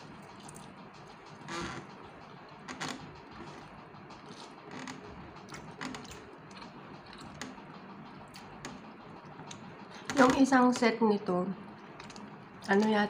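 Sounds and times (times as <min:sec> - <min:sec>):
chewing: 0:03.4 - 0:04.6, 0:05.3 - 0:07.4.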